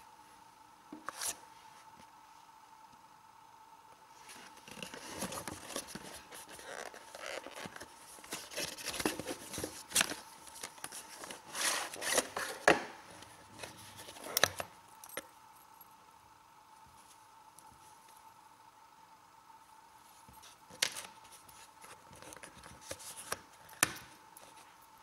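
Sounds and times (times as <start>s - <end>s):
cardboard and plastic rustling: 4.2s - 14.8s, 20.2s - 24.8s.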